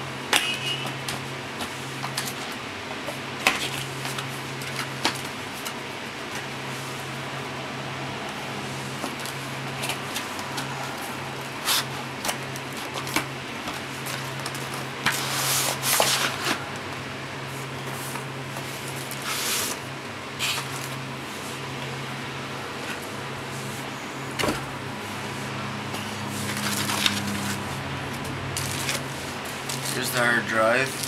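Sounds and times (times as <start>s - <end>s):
steady low hum: 0.0s - 31.0s
packaging scraping and rustling: 14.0s - 16.7s, 26.0s - 31.0s.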